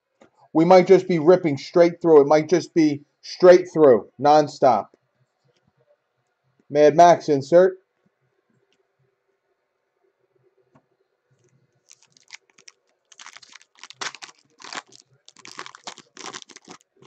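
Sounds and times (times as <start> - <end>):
foil wrapper crinkling: 11.8 - 17.0.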